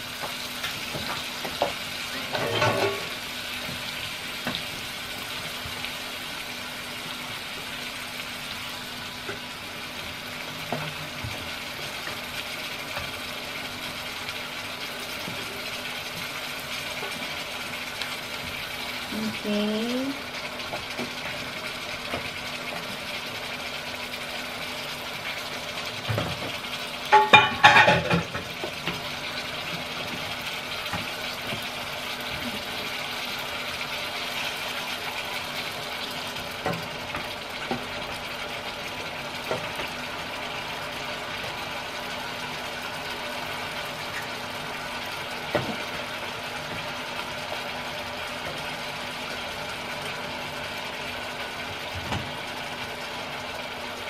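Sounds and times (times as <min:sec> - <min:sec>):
steady motor hum: 0:00.0 - 0:27.4
meat frying in a pan: 0:00.0 - 0:54.0
utensil clattering against pan: 0:27.1 - 0:28.5.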